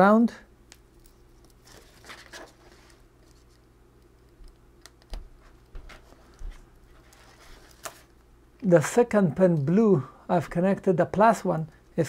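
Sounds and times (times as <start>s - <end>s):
small clicks and taps of wires: 0.7s - 1.8s, 3.2s - 7.2s.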